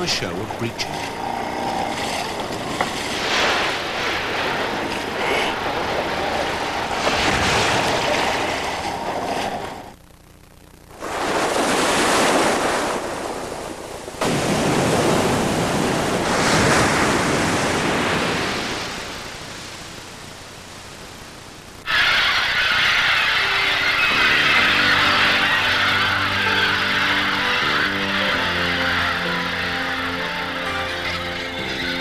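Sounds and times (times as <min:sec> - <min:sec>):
heavy splashes in sea: 0:02.0 - 0:09.9, 0:11.0 - 0:19.8.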